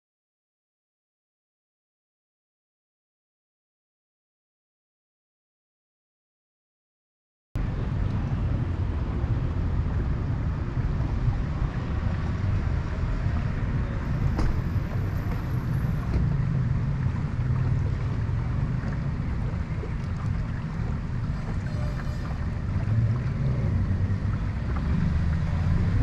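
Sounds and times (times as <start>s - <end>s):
boat motor rumbling: 7.6s - 26.0s
water noise: 7.6s - 26.0s
wind: 7.6s - 26.0s.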